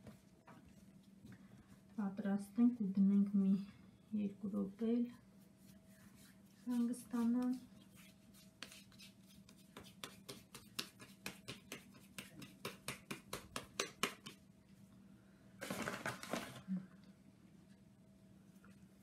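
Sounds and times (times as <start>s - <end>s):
hands slapping dough: 6.2s - 14.5s.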